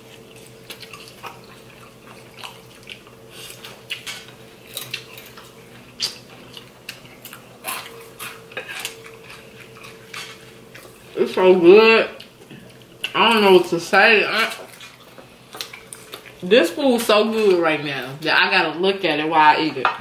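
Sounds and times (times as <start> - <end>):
chewing and mouth sounds: 0.0 - 11.2, 12.1 - 13.5, 14.4 - 16.4
forks tapping and scraping plates: 7.7 - 11.0.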